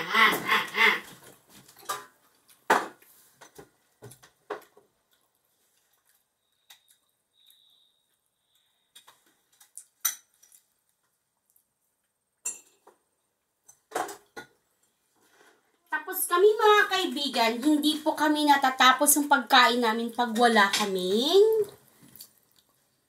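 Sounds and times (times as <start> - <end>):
dishes and cutlery clinking: 10.0 - 10.6, 12.4 - 13.0.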